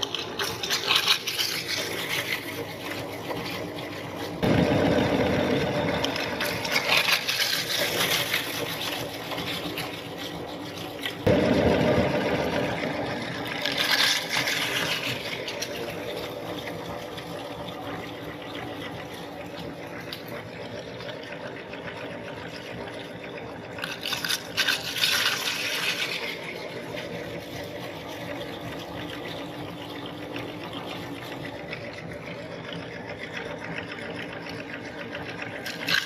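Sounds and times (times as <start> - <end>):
chips crunching in grinder: 0.0 - 16.7, 23.7 - 27.9, 35.4 - 36.0
electric meat grinder motor hum: 0.0 - 36.0.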